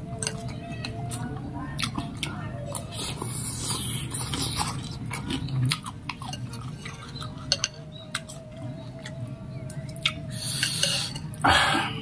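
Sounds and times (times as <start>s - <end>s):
chewing: 0.1s - 11.5s
metal spoon clinking glass bowl: 6.2s - 7.9s.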